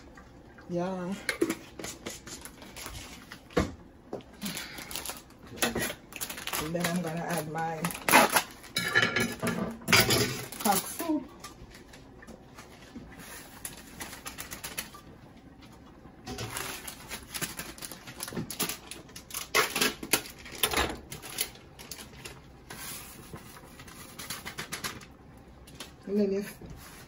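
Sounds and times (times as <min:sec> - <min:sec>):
foil sachets crinkling: 0:01.9 - 0:03.5, 0:04.4 - 0:08.8, 0:10.3 - 0:12.0, 0:12.6 - 0:15.1, 0:16.3 - 0:26.1.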